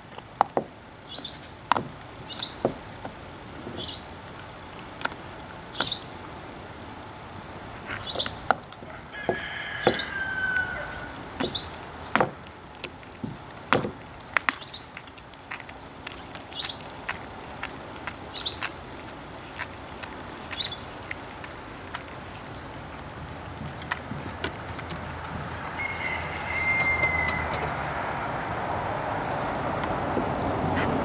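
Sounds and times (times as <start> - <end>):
bird chirping: 1.0 - 1.5, 2.2 - 2.8, 3.6 - 4.1, 5.7 - 6.1, 7.9 - 8.4, 9.8 - 11.8, 16.5 - 16.8, 18.3 - 18.7, 20.4 - 21.0, 25.1 - 27.8
dog gnawing bone: 1.5 - 31.0.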